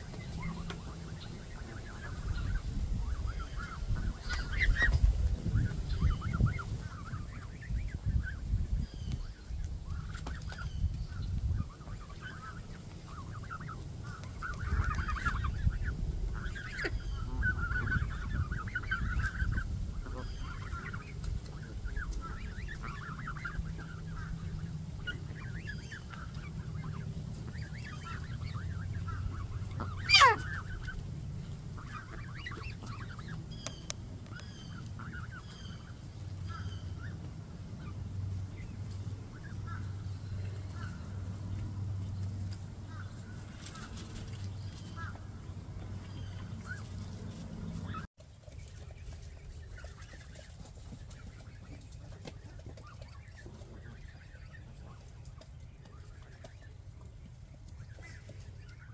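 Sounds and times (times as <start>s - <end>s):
geese calling softly: 0.0s - 48.1s.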